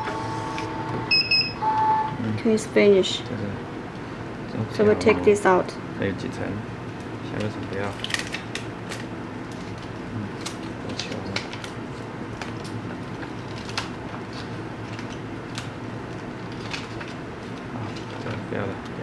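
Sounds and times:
steady low hum: 0:00.0 - 0:19.0
plastic film crackling: 0:07.3 - 0:18.4.

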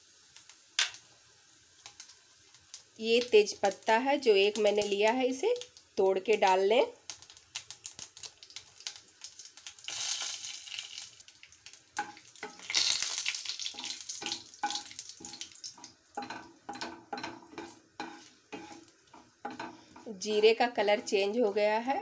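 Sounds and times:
seeds sizzling in hot oil: 0:00.0 - 0:22.0
wooden spatula scraping pan: 0:13.7 - 0:21.6.

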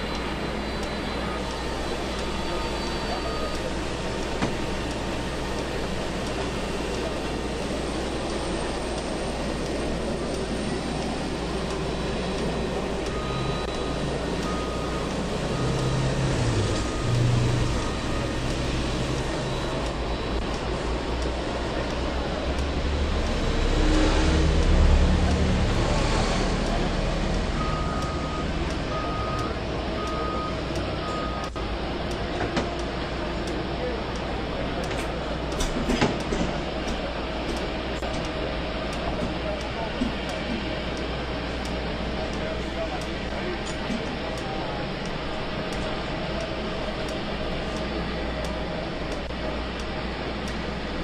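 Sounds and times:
vehicle reversing beeper: 0:00.0 - 0:04.6, 0:11.8 - 0:20.4, 0:23.8 - 0:31.7
aircraft and ground equipment rumble: 0:00.0 - 0:51.0.

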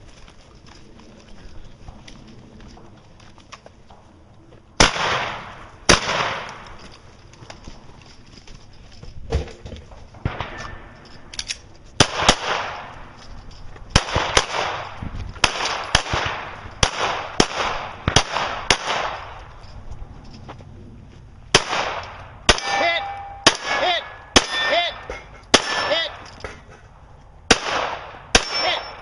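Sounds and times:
pistol shots: 0:04.8 - 0:06.7, 0:12.0 - 0:13.0, 0:13.9 - 0:19.4, 0:21.5 - 0:26.2, 0:27.5 - 0:29.0
metallic rings of steel targets: 0:10.2 - 0:11.6, 0:22.5 - 0:26.7, 0:28.2 - 0:29.0.

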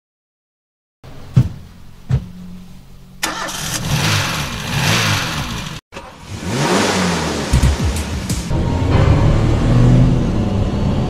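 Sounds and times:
car engine starting and revving: 0:03.2 - 0:11.0.

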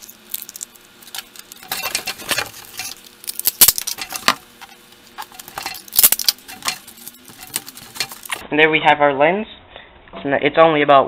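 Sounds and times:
sharp clicks and crackles: 0:00.0 - 0:08.4
tape and cardboard rustling: 0:00.0 - 0:08.4.

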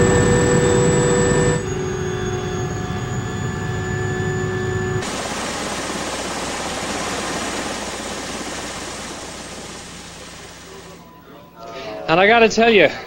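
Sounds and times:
helicopter engine drone: 0:00.0 - 0:11.7
high whining turbine tones: 0:00.0 - 0:11.7
even rushing noise: 0:05.0 - 0:11.0.

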